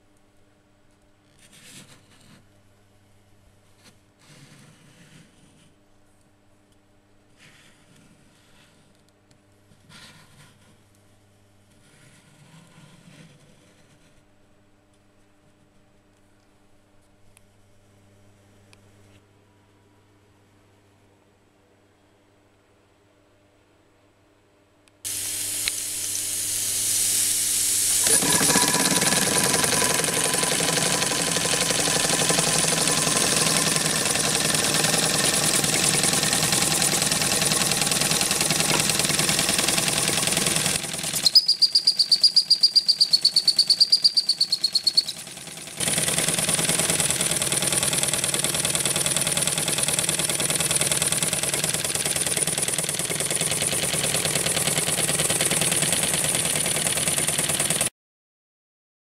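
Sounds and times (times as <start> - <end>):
toy steam engine hissing: 25.1 - 57.9.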